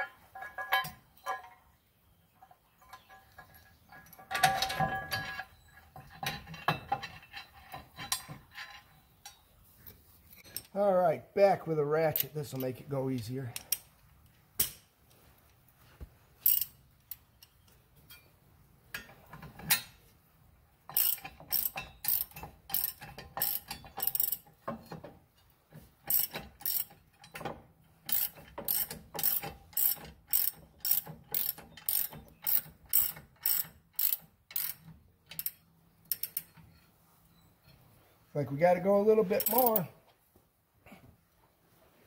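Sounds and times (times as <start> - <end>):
hand ratchet clicking: 20.9 - 24.5, 26.0 - 27.0, 28.1 - 36.5, 39.4 - 39.8.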